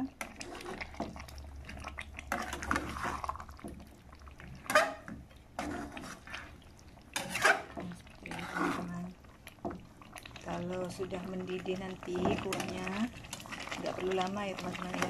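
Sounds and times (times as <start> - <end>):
wet sauce sound: 0.0 - 15.0
spatula scraping frying pan: 0.2 - 1.3, 2.2 - 3.5, 4.4 - 9.8.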